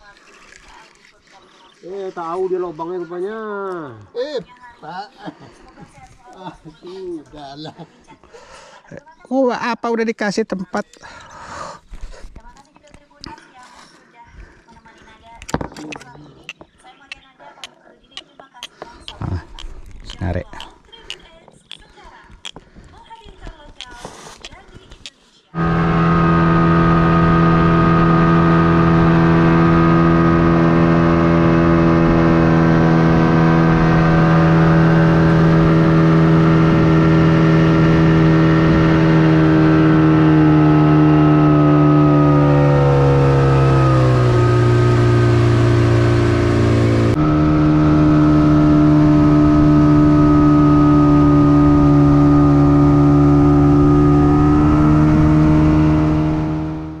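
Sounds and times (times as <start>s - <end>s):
boat engine running: 25.6s - 57.0s.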